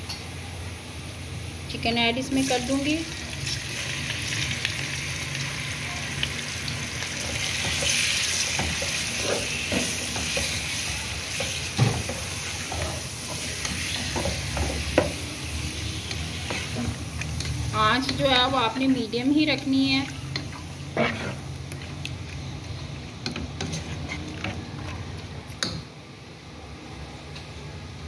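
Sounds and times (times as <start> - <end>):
chicken sizzling in hot oil: 1.0 - 22.2
spatula scraping and knocking pot: 23.3 - 24.6.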